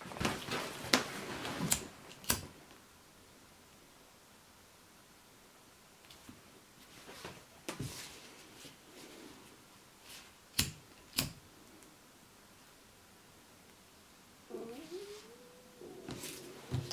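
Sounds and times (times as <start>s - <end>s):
straps rustling: 0.0s - 2.2s.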